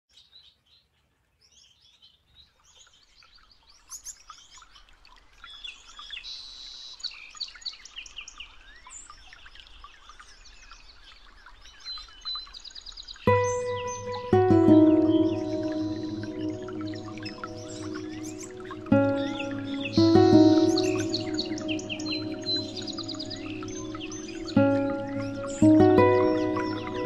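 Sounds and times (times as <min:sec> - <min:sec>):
bird courtship song: 0:13.1 - 0:27.0
finches chirping and twittering: 0:13.3 - 0:27.0.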